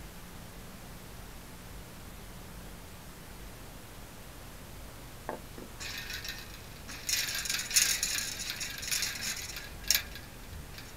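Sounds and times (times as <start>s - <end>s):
crackly handling rustle: 5.8s - 10.9s.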